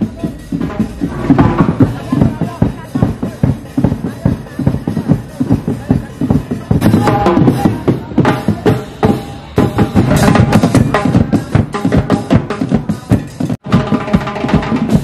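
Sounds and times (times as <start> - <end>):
music with steady drum beat: 0.0 - 15.0.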